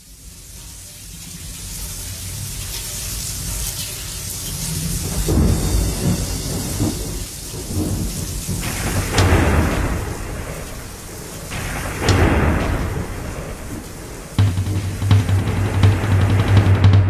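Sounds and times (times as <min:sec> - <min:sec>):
rain: 0:00.0 - 0:17.0
thunder rumbling: 0:04.4 - 0:17.0.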